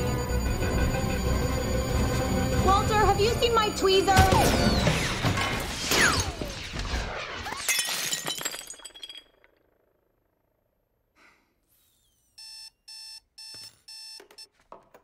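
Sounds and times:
crash debris tinkling: 4.5 - 9.6
electronic alarm short beeps: 12.3 - 14.5.

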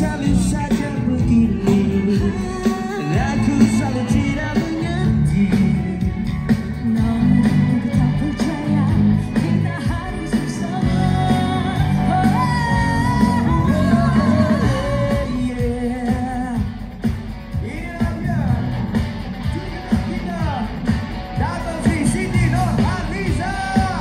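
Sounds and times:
pop duet singing: 0.0 - 17.0, 21.4 - 24.0
instrumental accompaniment: 0.0 - 24.0.

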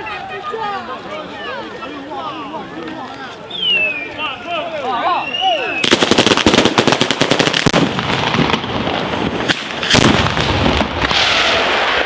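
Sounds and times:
firecracker barrage bangs and crackle: 5.8 - 12.0.

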